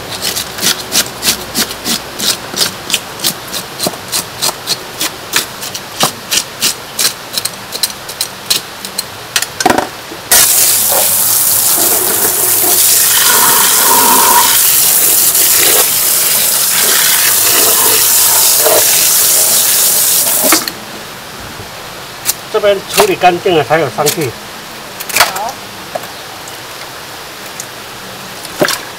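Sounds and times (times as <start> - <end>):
knife scraping fish scales: 0.0 - 8.6
hose water gushing onto fish: 10.3 - 20.6.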